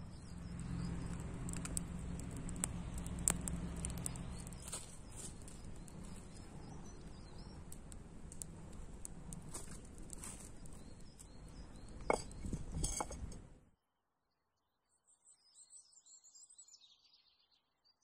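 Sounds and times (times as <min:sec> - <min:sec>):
wood fire crackling: 0:00.0 - 0:13.6
footsteps on dry leaves: 0:04.6 - 0:06.2.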